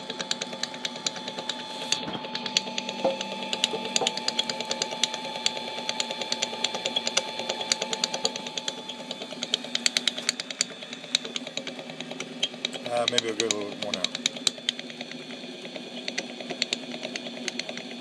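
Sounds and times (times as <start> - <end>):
lathe motor and gear whine: 0.0 - 18.0
rapid uneven clicking: 5.9 - 15.2.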